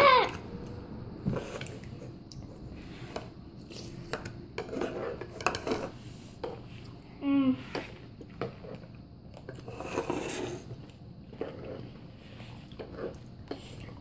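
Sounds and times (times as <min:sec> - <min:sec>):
child voiced sound: 0:00.0 - 0:00.5.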